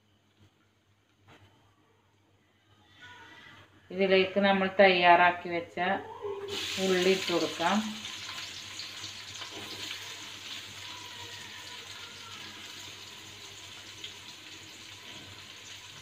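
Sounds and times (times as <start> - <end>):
onions sizzling in oil: 6.5 - 16.0.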